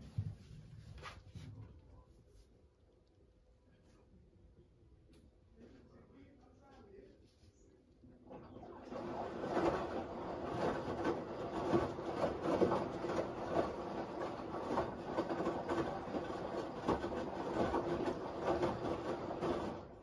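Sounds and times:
washing machine drum whirring: 8.0s - 20.0s.

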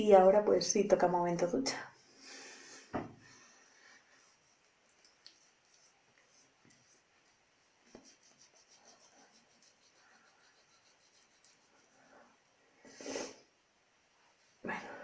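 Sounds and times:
cotton pad rubbing on skin: 3.6s - 12.3s
puff of breath: 12.8s - 13.5s.

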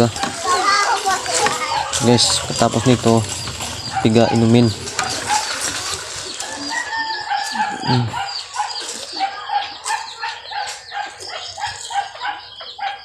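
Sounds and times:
chickens clucking: 0.0s - 13.0s
rooster crowing: 6.2s - 8.4s.

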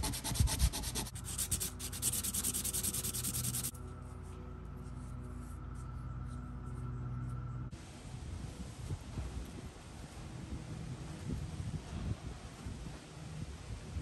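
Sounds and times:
pipe sanded on sandpaper: 0.0s - 3.7s
faint steady hum: 0.0s - 14.0s.

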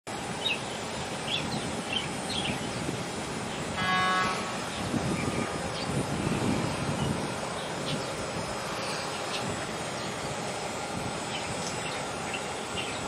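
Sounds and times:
outdoor rumble: 0.1s - 13.0s
wind noise: 0.2s - 13.0s.

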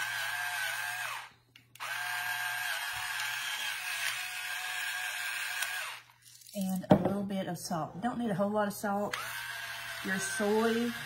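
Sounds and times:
electric pepper grinder whining: 0.0s - 6.3s, 9.1s - 11.0s.

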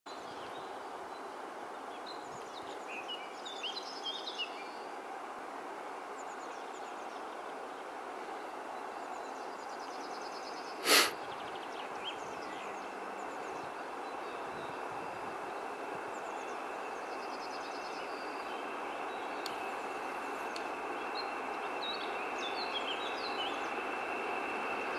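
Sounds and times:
short sharp burst of noise: 10.8s - 11.2s
distant locomotive rumble: 11.2s - 24.9s.

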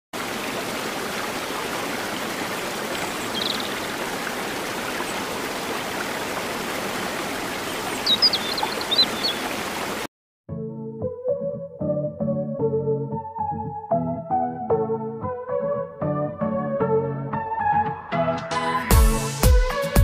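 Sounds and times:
stream flowing over rocks: 0.2s - 10.1s.

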